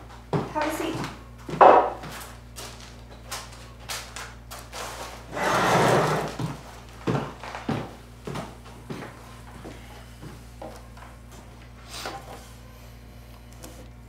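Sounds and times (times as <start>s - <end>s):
chair scuff: 4.7s - 6.6s
chair scraping across floor: 4.8s - 6.7s.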